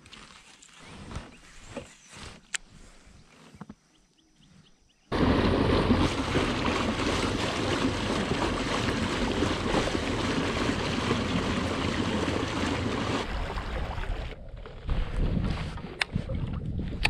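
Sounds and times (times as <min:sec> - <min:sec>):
water rushing along kayak hull: 0:05.1 - 0:15.8
wind buffeting microphone: 0:05.1 - 0:17.0.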